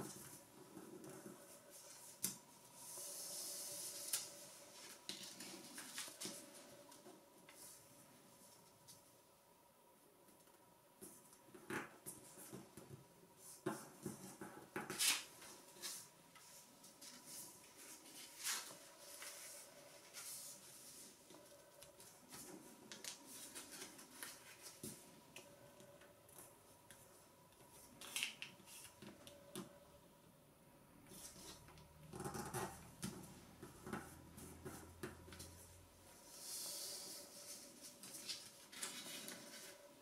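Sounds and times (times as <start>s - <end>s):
paper rustling and crinkling: 3.7s - 7.6s, 16.8s - 25.1s, 37.3s - 40.0s.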